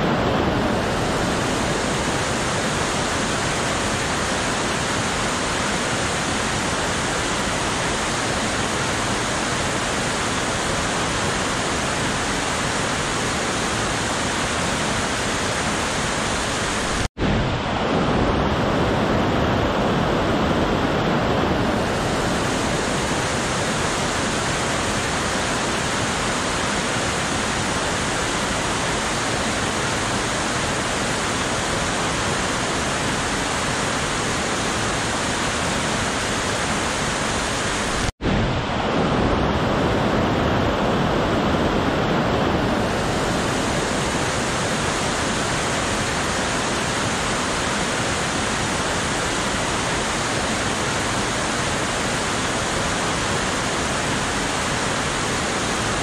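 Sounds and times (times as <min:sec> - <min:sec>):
stream rushing over rocks: 0:00.0 - 0:56.0.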